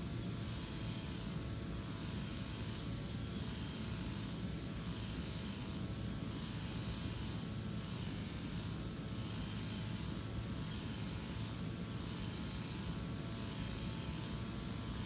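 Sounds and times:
brush cutter engine droning: 0:00.0 - 0:15.0.

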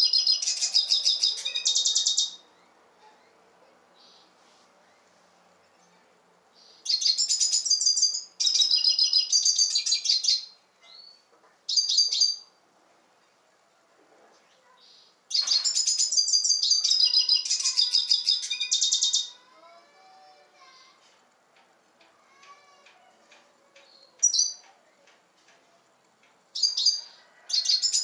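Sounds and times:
bird twittering trills: 0:00.0 - 0:02.8, 0:06.6 - 0:12.5, 0:14.9 - 0:19.4, 0:26.6 - 0:28.0.

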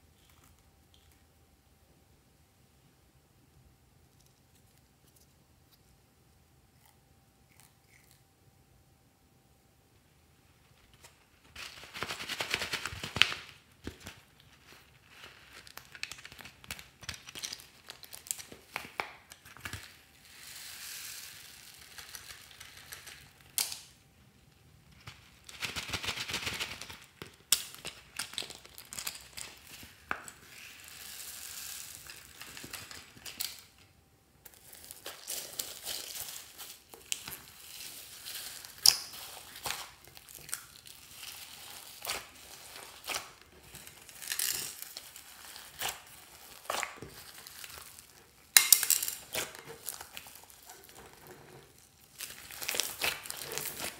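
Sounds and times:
plastic pouches crinkling: 0:11.5 - 0:20.2, 0:25.5 - 0:53.9.

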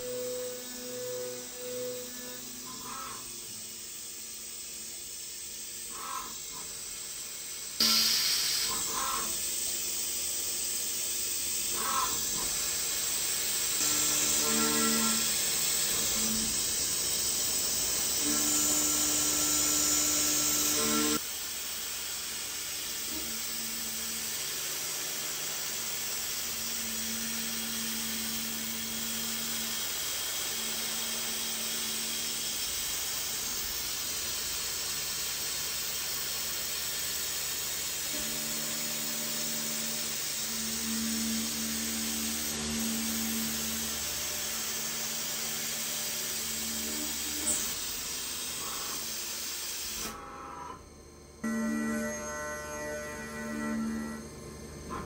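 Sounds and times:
milling machine cutting whine: 0:00.0 - 0:21.3, 0:22.4 - 0:55.0.

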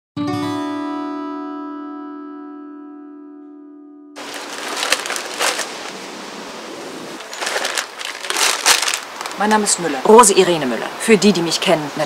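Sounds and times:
plucked string note: 0:00.2 - 0:04.2
plastic wrapper crinkling: 0:04.2 - 0:06.0, 0:07.2 - 0:09.8.

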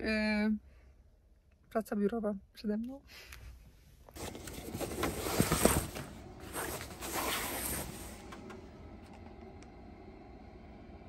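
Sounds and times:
rustling and handling noises: 0:04.0 - 0:08.5.

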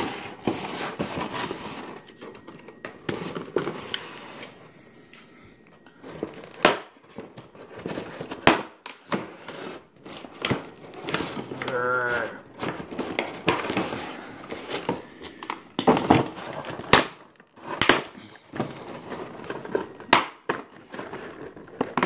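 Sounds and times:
plastic packaging crinkling: 0:00.0 - 0:04.8, 0:05.6 - 0:22.0
loud plastic snaps: 0:14.8 - 0:18.2, 0:19.4 - 0:20.8.

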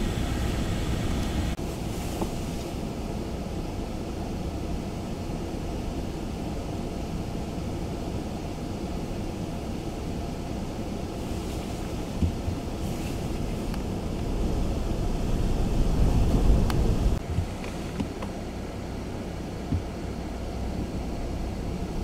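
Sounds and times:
wind buffeting microphone: 0:11.0 - 0:18.5.

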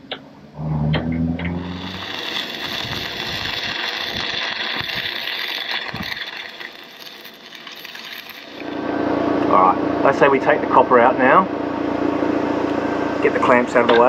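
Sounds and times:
low hum: 0:00.0 - 0:14.0
welding arc crackling and hissing: 0:01.4 - 0:09.8.

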